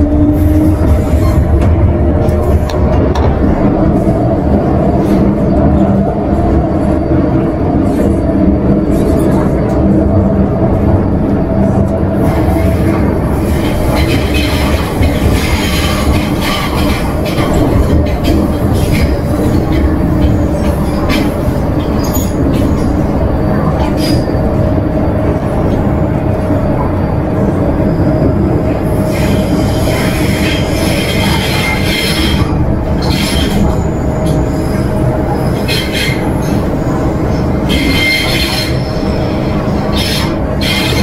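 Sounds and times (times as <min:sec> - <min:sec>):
steady train hum: 0:00.0 - 0:41.0
train wheels rumbling on rail: 0:00.0 - 0:41.0
high-pitched train squeals: 0:12.2 - 0:25.2, 0:26.5 - 0:41.0.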